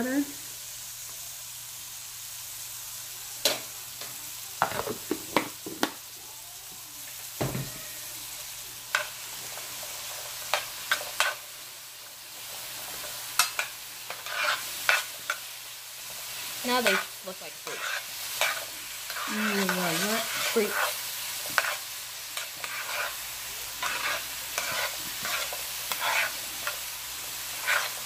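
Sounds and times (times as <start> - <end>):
vegetables sizzling in a skillet: 0.0 - 28.0
stirring in a pan: 3.4 - 28.0.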